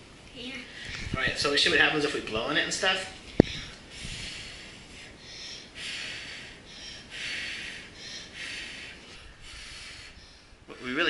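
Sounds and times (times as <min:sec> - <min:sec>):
child blowing puffs of breath: 0:03.3 - 0:10.6.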